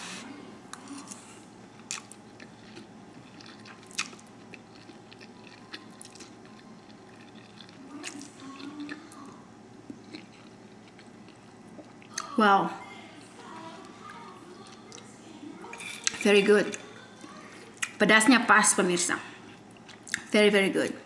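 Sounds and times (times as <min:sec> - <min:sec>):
chewing and slurping noodles: 0:01.9 - 0:09.1.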